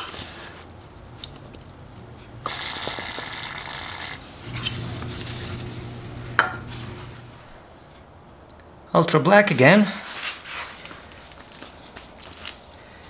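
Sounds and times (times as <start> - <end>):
paper towel rustling: 4.3 - 7.6.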